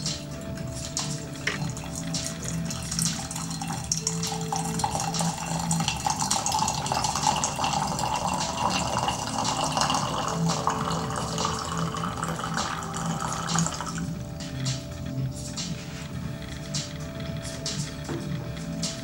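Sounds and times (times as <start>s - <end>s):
tea pouring into glass pitcher: 0.6s - 14.2s.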